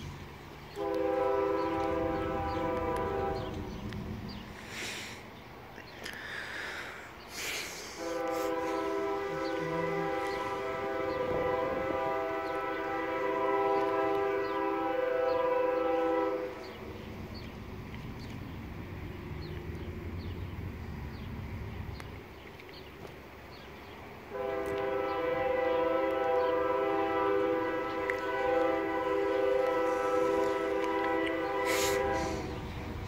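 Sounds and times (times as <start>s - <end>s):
locomotive air horn chord: 0.7s - 3.8s, 7.9s - 16.8s, 24.3s - 33.0s.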